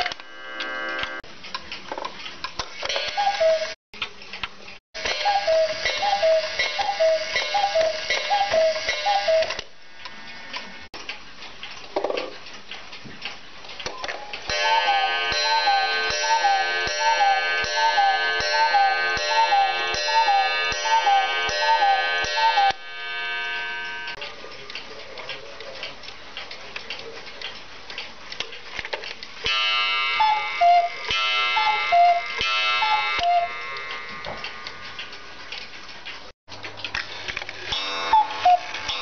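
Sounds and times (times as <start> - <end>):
clockwork ticking and clicking: 1.0 - 39.0
cuckoo clock call: 2.8 - 3.8, 5.0 - 9.7, 13.9 - 24.2, 29.5 - 35.3, 37.6 - 39.0
music-box melody: 5.0 - 9.6, 14.5 - 22.8.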